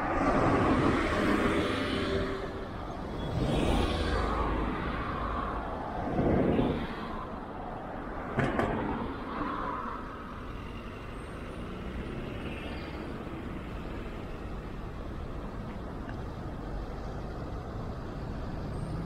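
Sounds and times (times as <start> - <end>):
road traffic passing: 0.0 - 19.0.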